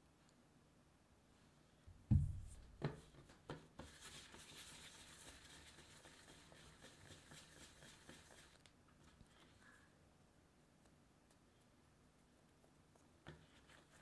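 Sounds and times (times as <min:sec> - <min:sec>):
dough rubbing on tabletop: 0:02.4 - 0:09.5, 0:12.9 - 0:14.0.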